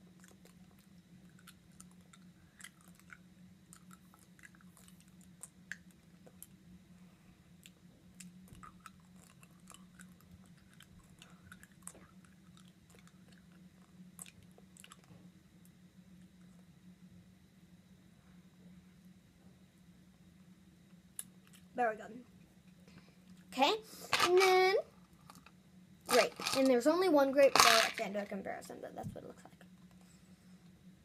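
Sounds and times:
low steady hum: 0.0 - 31.0
chewing hard candy: 0.1 - 6.6, 7.6 - 15.2, 26.1 - 26.7, 27.5 - 28.0.

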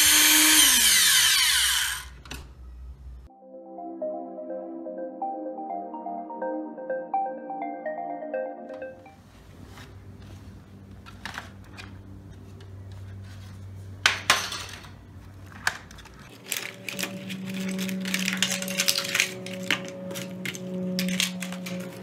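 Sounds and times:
computer parts clattering in plastic tub: 15.5 - 22.0.

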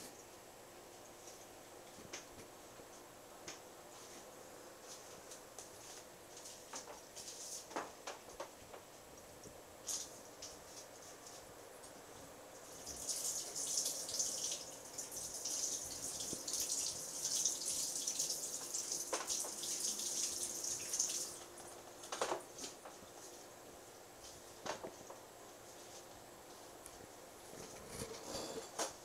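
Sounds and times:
aquarium water fizzing with bubbles: 12.6 - 23.3.

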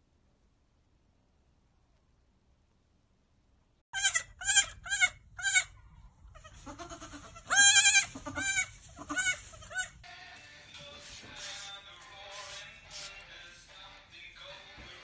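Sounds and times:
goat kids bleating: 4.0 - 10.0.

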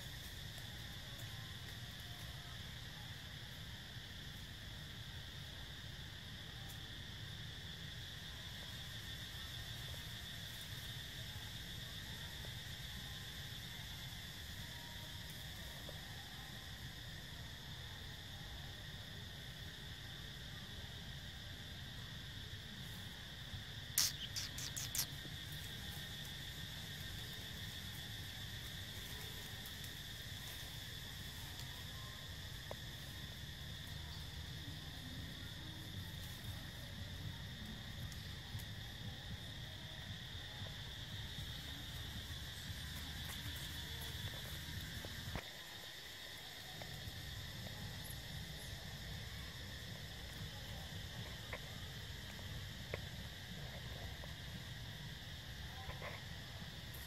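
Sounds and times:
insect chorus drone: 0.0 - 57.0
sharp clicks: 24.0 - 25.1.

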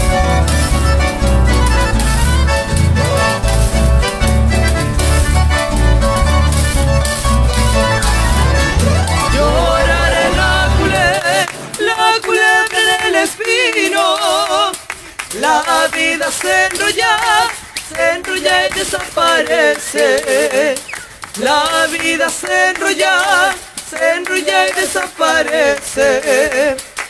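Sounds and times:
person singing: 8.0 - 27.0.

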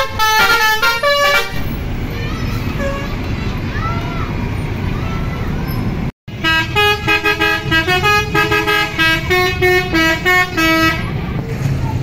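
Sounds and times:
bus horn playing a tune: 0.0 - 3.2, 6.3 - 11.1
road traffic noise: 0.0 - 12.0.

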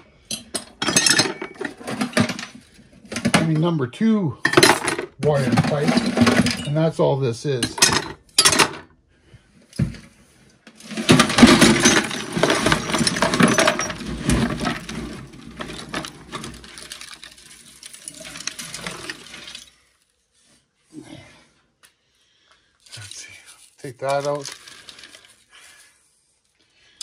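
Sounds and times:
scrap metal pouring and rattling: 5.3 - 6.7, 10.8 - 19.8, 23.9 - 25.2.

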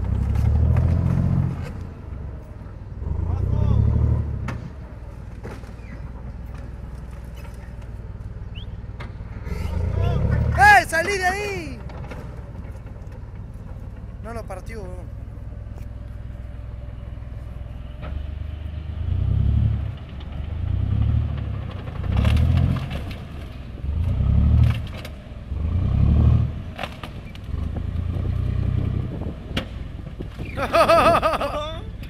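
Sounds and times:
diesel engine revving: 0.0 - 32.0
track clatter: 0.0 - 32.0
wood cracking: 21.3 - 25.3, 26.7 - 27.7.

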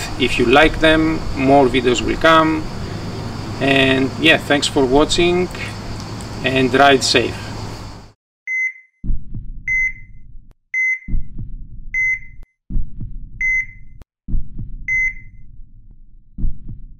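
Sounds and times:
short electronic beep: 8.5 - 9.0, 9.7 - 10.2, 10.8 - 11.2, 12.0 - 12.4, 13.4 - 14.0, 14.9 - 15.4
low double thumps: 9.0 - 16.9.

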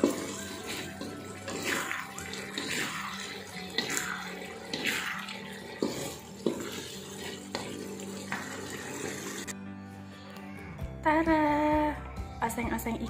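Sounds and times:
spatula scraping a wok: 0.0 - 9.5
sauce bubbling and sizzling: 0.0 - 9.6.

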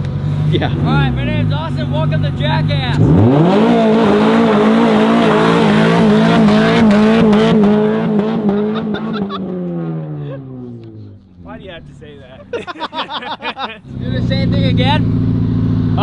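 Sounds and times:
car engine revving in burnout: 0.1 - 12.1.

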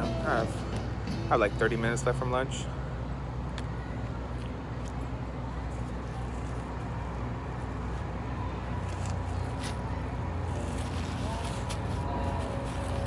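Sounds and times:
low mechanical hum: 0.0 - 13.0
street noise: 0.0 - 13.0.

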